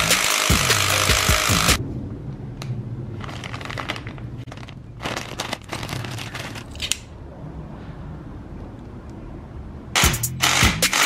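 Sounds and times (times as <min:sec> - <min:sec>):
low steady hum: 0:01.8 - 0:09.9
plastic bag crinkling: 0:03.2 - 0:06.9.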